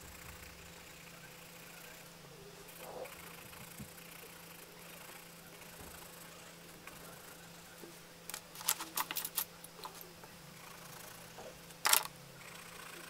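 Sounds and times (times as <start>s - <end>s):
faint steady hum: 0.0s - 13.0s
pencils clicking and clattering: 8.3s - 10.1s, 11.7s - 12.1s.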